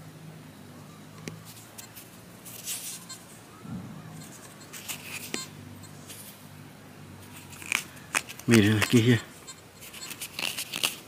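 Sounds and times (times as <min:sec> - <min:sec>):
low steady hum: 0:00.0 - 0:11.0
fingers scratching mud off coin: 0:09.8 - 0:11.0.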